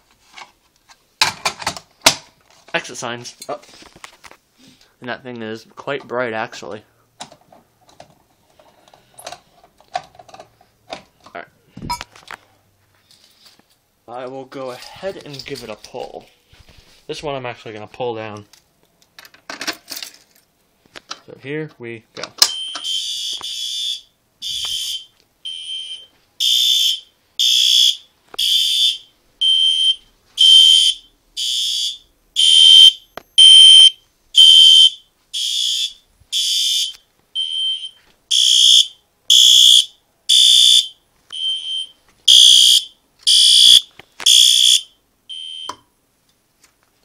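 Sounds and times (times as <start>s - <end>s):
fire alarm horn pulses: 42.3s - 45.7s.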